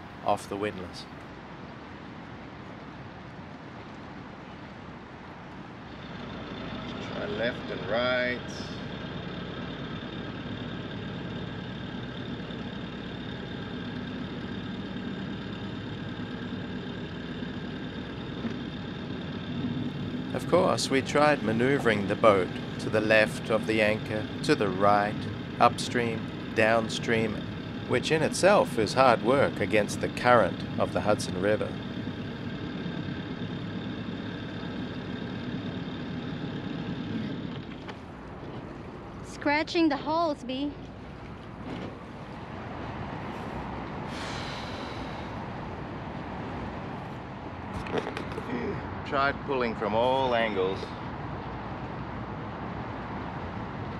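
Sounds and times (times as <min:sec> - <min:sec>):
boat engines running: 0:00.0 - 0:53.9.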